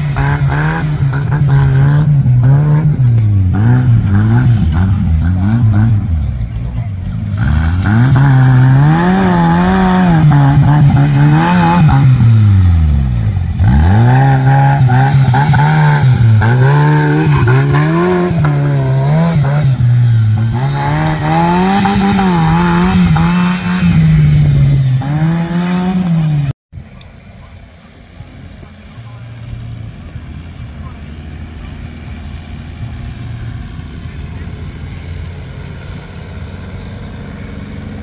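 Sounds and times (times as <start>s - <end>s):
tractor engine revving: 0.0s - 38.0s.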